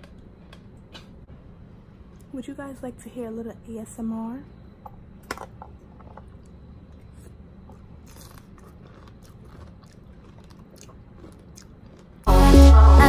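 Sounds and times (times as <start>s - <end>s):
chewing crunches: 6.3s - 12.3s.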